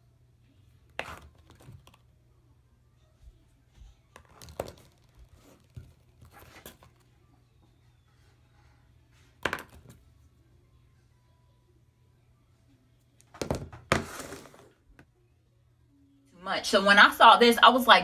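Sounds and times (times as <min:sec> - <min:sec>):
tubes knocking on countertop: 0:13.4 - 0:14.7.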